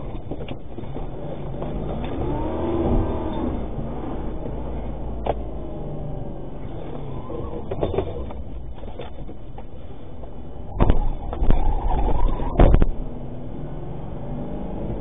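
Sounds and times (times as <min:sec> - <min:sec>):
engine and road rumble: 0:00.0 - 0:15.0
wavering squeal: 0:10.8 - 0:12.8.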